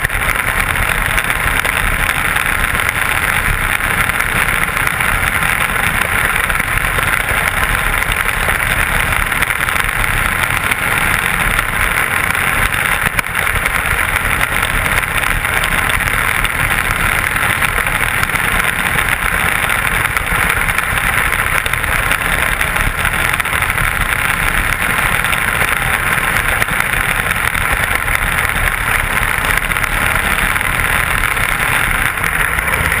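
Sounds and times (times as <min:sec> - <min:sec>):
muffled racing engine roar: 0:00.0 - 0:33.0.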